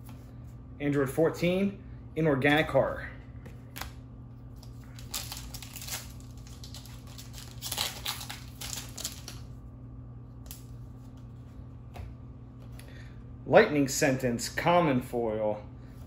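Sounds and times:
foil pack tearing and crinkling: 4.5 - 9.5.

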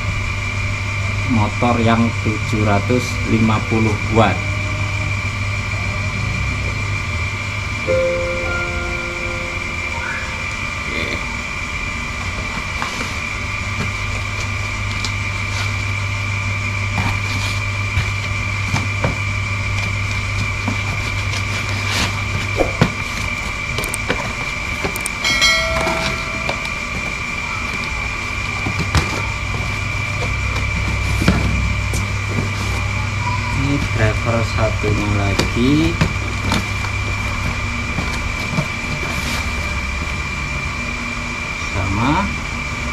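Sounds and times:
background hum with high whine: 0.0 - 42.9
chirp-like tone: 7.8 - 11.5, 25.3 - 28.1, 32.9 - 33.7
boxes and parts being handled: 19.8 - 32.8.

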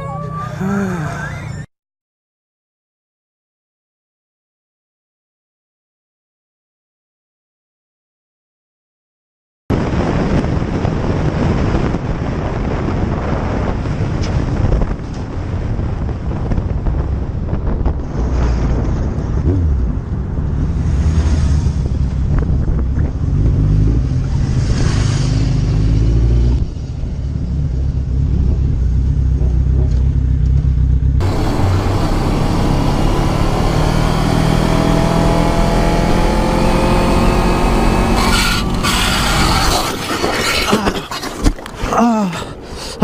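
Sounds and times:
wind rushing over microphone: 9.7 - 29.9
motorcycle engine revving: 27.4 - 40.0.

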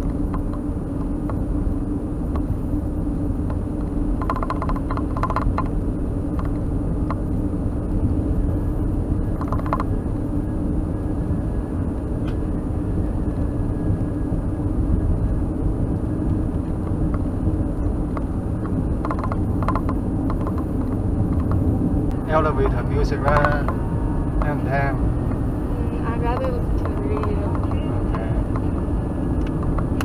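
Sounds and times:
car rumbling on gravel road: 0.0 - 30.0
rattling clicks: 4.2 - 5.7, 9.4 - 9.9, 18.1 - 21.6.

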